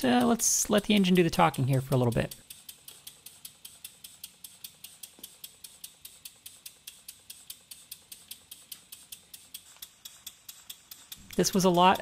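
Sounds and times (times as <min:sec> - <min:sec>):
model steam engine chuffing: 0:00.0 - 0:12.0.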